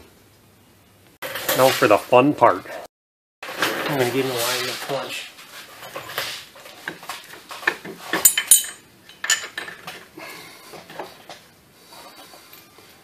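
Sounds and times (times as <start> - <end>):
metal clanks and scrapes: 3.4 - 10.1.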